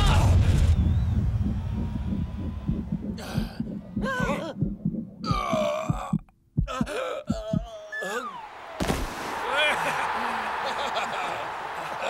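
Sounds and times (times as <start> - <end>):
heartbeat-like thudding: 0.0 - 7.8
wavering groan-like voices: 3.2 - 8.5.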